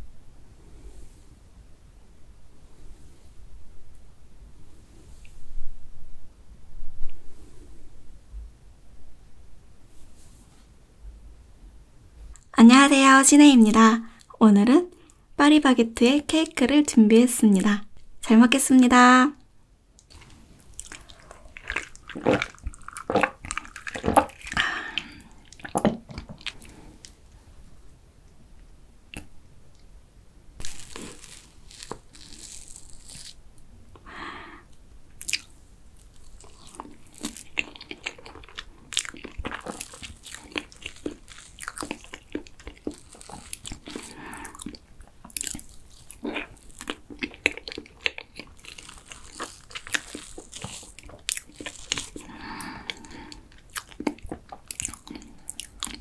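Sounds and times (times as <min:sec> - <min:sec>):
chewing and lip smacks: 0:20.0 - 0:27.2, 0:36.2 - 0:56.0.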